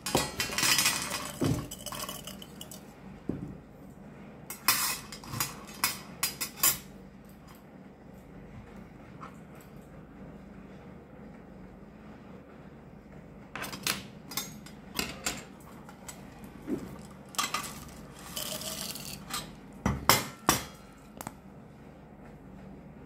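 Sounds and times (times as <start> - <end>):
capsules pouring into glass bottle: 17.8 - 19.2.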